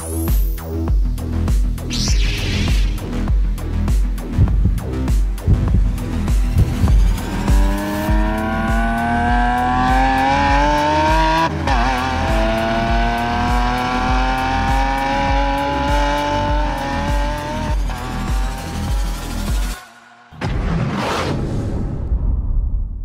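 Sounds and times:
music with pulsing bass: 0.0 - 19.9
car engine accelerating hard: 6.6 - 19.4.

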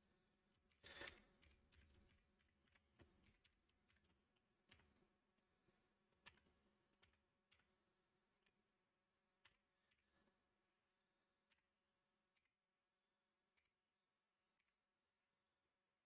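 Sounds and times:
laptop keyboard keystrokes: 0.5 - 4.9, 6.2 - 7.7.

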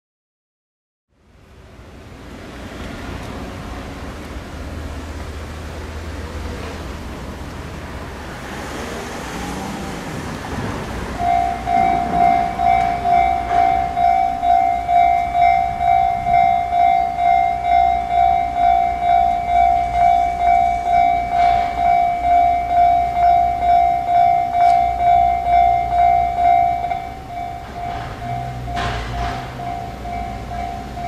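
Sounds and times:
level-crossing warning bell clanging: 10.0 - 31.0.

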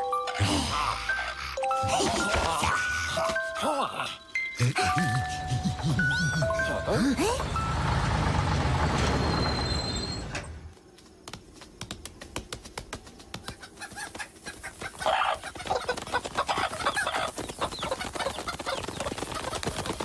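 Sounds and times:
truck engine rumble: 5.8 - 10.8
cartoon chickens clucking: 13.4 - 20.0.

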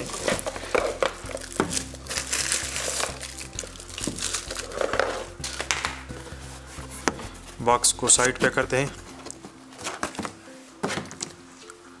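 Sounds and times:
plastic wrapping crinkling: 0.0 - 6.1.

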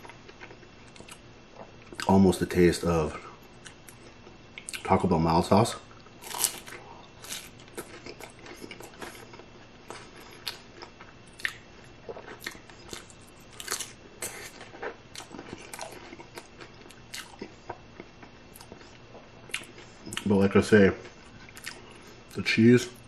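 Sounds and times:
taco shell crunching: 6.0 - 18.8.

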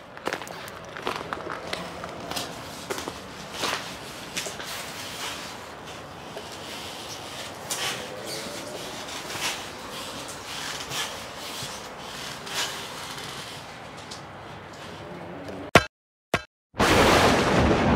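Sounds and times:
rubbing and scraping: 1.8 - 15.1.

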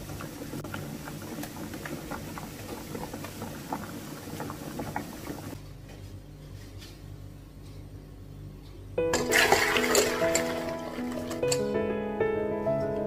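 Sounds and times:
broth boiling in a pan: 0.0 - 5.6
low room hum: 0.0 - 13.0.

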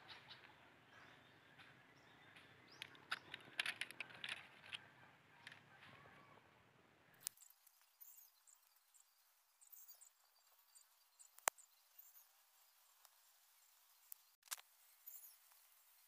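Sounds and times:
faint high-pitched chirping: 0.0 - 6.5, 7.1 - 16.0
sticks and cord clicking: 2.4 - 4.8.

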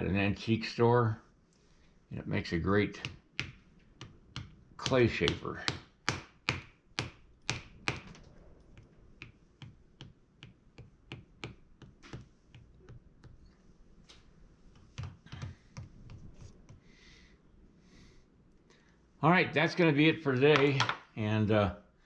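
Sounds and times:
wooden masher knocking on clay: 9.2 - 13.4.

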